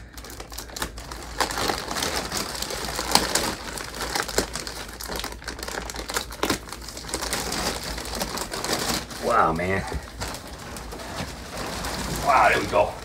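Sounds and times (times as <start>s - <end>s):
plastic wrap crinkling: 0.0s - 13.0s
scissors cutting plastic: 0.2s - 9.2s.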